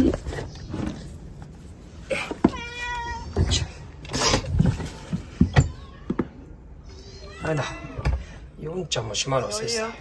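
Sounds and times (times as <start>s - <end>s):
cat meowing: 2.4s - 3.5s.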